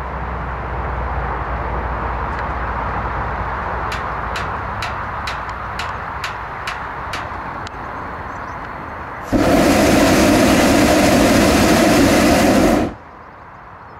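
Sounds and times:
propane burner roaring: 9.0s - 13.0s.

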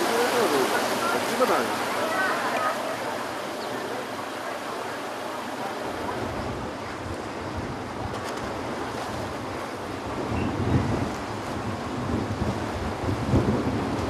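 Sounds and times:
waves washing over quay: 0.0s - 14.0s
wind gusting on microphone: 5.9s - 14.0s.

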